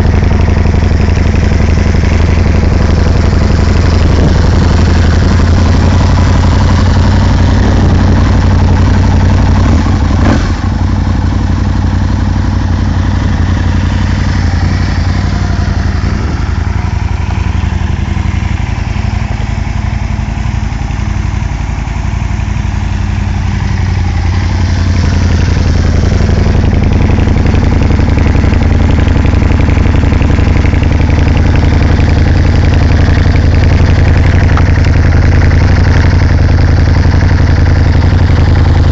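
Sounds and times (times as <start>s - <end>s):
motorcycle engine idling: 0.0s - 38.9s.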